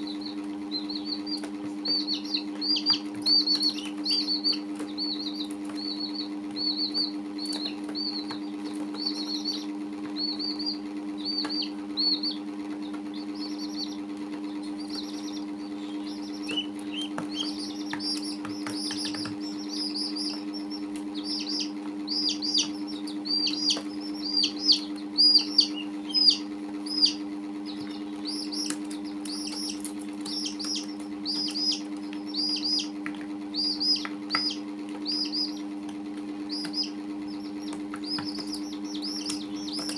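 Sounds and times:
chicks peeping: 0.0 - 39.9
steady low hum: 0.0 - 39.9
sharp clicks: 27.7 - 39.9.

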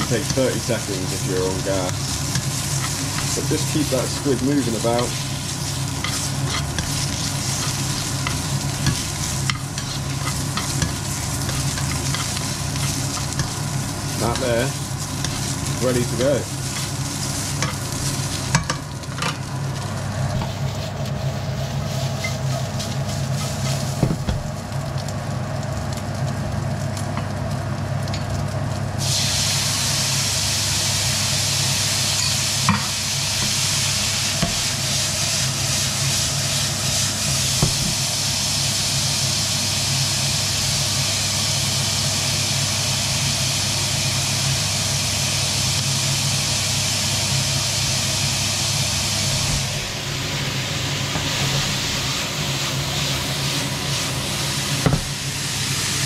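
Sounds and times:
extractor fan hum: 0.0 - 29.1, 47.2 - 56.0
squid frying in a pan: 0.0 - 56.0.

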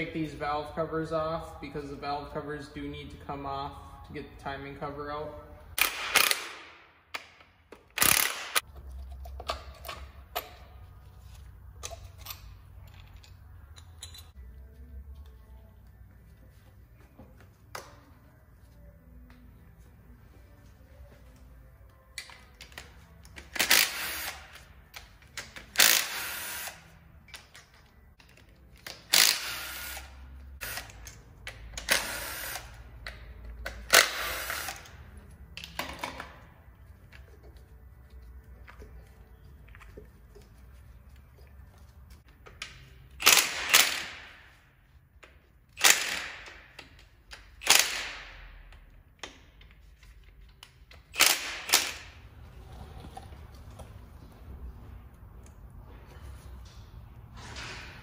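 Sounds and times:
cordless impact driver bursts: 25.8 - 26.8, 29.2 - 30.9.

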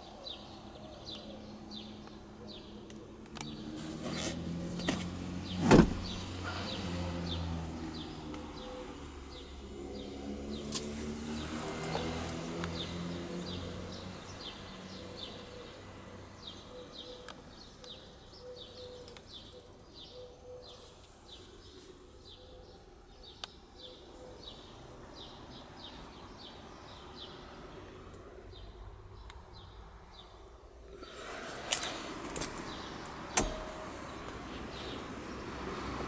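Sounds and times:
bird chirping: 11.3 - 27.3.

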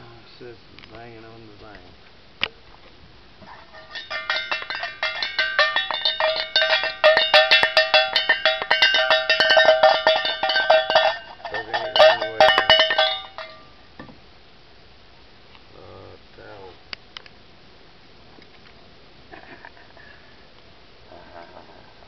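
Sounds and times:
metal object banging: 3.6 - 13.7.

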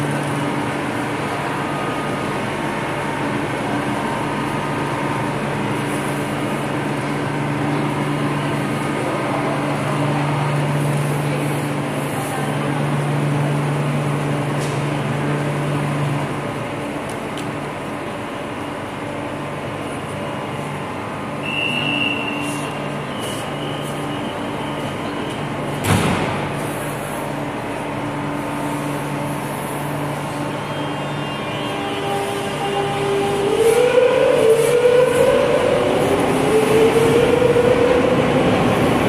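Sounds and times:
train equipment humming: 0.0 - 39.0
sliding doors closing bang: 25.8 - 26.6.

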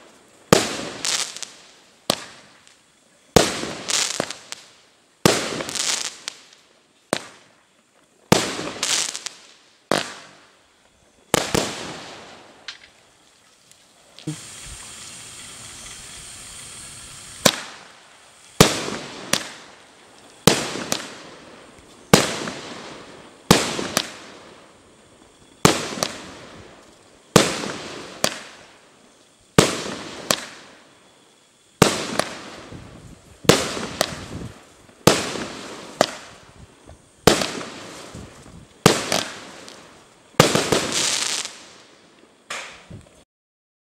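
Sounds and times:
crackling tail: 0.0 - 43.2
firework shots and bangs: 3.4 - 4.5, 17.4 - 17.9, 18.6 - 19.7, 20.4 - 21.3, 22.1 - 24.3, 25.6 - 26.4, 27.3 - 28.6, 29.6 - 30.6, 31.8 - 32.8, 33.4 - 36.5, 38.8 - 39.8, 40.4 - 41.6
fuse hissing: 13.8 - 20.4.

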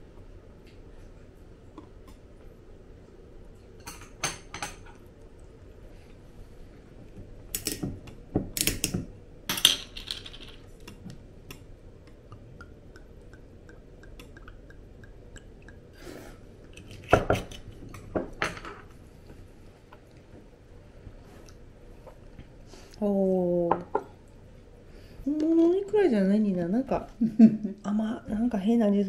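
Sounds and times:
dishes and cutlery clinking: 3.8 - 5.0.

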